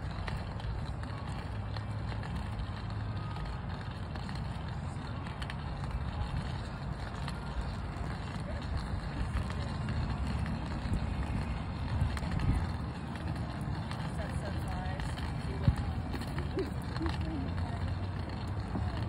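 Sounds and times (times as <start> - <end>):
wind buffeting microphone: 7.4 - 19.0.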